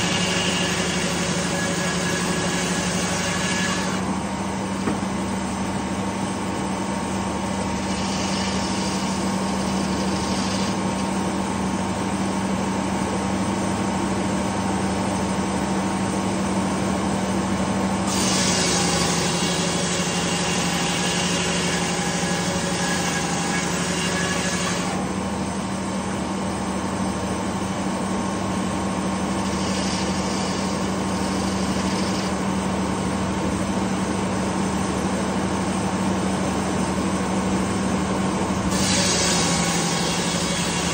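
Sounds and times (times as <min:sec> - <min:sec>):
saw blade cutting log: 0:00.0 - 0:05.0, 0:07.2 - 0:11.7, 0:18.0 - 0:25.1, 0:29.2 - 0:32.8, 0:38.6 - 0:40.9.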